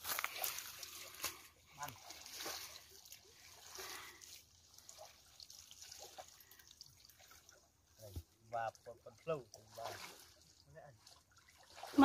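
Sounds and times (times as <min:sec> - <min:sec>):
water trickling and dripping: 0:00.0 - 0:12.0.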